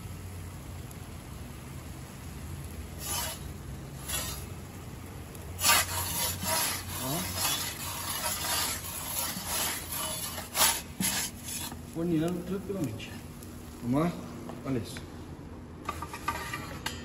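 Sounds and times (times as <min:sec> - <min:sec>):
gas burners humming: 0:00.0 - 0:17.0
metal peel scraping on stone: 0:03.0 - 0:04.5, 0:05.6 - 0:12.0, 0:15.8 - 0:17.0.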